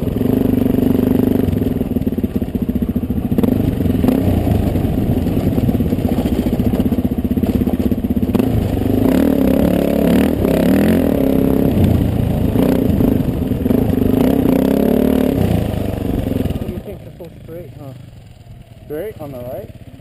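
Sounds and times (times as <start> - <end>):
dirt bike engine running: 0.0 - 20.0.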